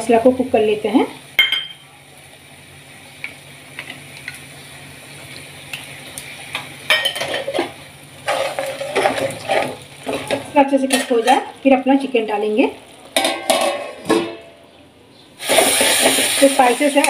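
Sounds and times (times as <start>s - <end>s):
spice paste sizzling: 0.6s - 13.2s, 15.3s - 17.0s
metal spoon scraping pan: 7.0s - 11.5s
water splashing into hot pan: 15.4s - 17.0s.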